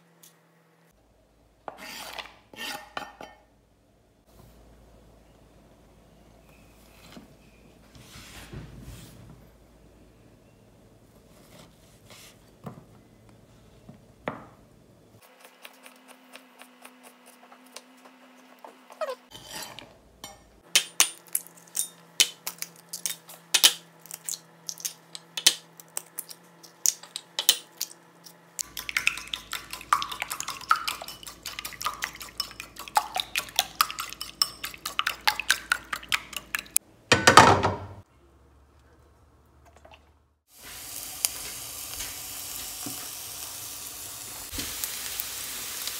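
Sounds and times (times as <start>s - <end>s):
utensils clinking on ceramic bowls: 19.3s - 25.5s, 28.6s - 36.8s.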